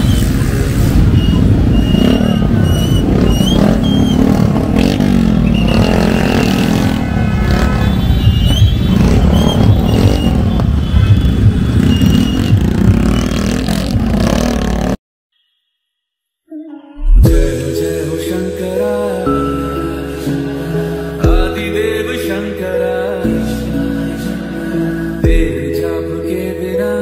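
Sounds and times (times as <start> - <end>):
motorcycle engines in traffic: 0.0 - 15.0.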